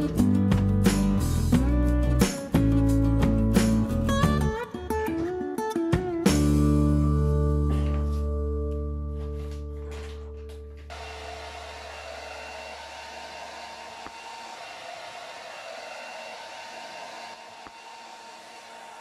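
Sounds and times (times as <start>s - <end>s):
hair dryer running: 10.9s - 19.0s.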